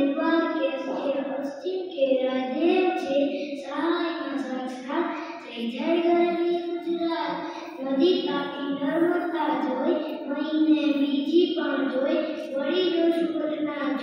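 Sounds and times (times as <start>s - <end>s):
boy chanting in sing-song melody: 0.0s - 14.0s.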